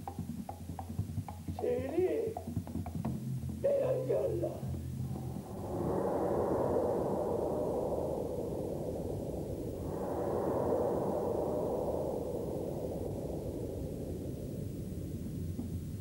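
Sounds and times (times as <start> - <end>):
low rushing whoosh: 5.0 - 16.0.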